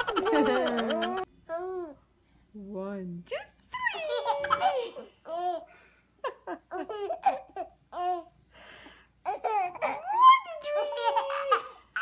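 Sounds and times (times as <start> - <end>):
baby giggling: 0.0 - 1.6, 4.0 - 5.6, 6.7 - 8.3, 9.3 - 12.0.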